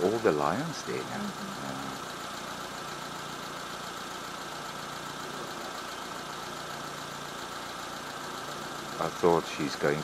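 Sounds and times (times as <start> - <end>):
vehicle engine idling: 0.0 - 10.0.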